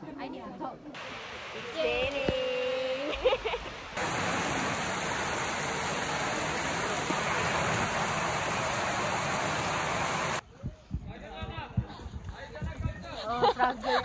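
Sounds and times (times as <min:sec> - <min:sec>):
heavy rain pouring: 0:04.0 - 0:10.4.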